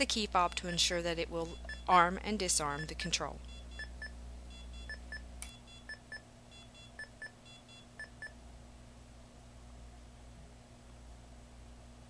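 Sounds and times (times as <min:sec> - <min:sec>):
alarm keypad double beeps: 0:01.4 - 0:02.0, 0:02.7 - 0:08.4.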